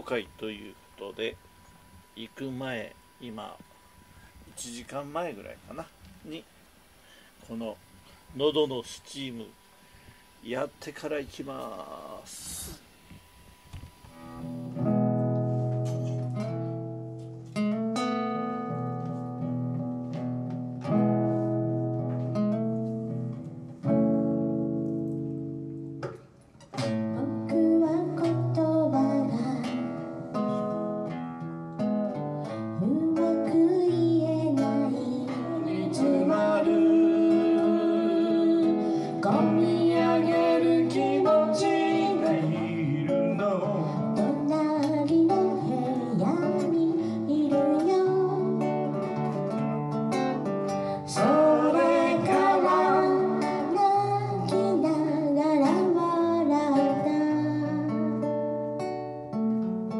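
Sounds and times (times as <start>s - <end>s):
acoustic guitar strumming: 13.4s - 59.9s
man singing: 34.6s - 44.5s, 51.1s - 53.9s.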